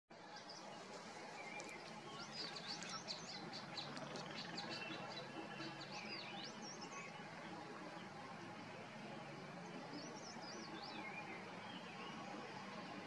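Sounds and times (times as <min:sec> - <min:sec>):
songbirds chirping: 0:00.1 - 0:13.0.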